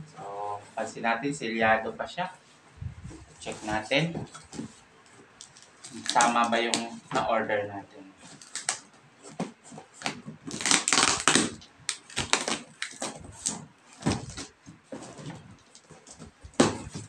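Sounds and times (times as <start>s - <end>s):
packaging crinkling and rustling: 3.3s - 7.1s, 8.2s - 17.0s.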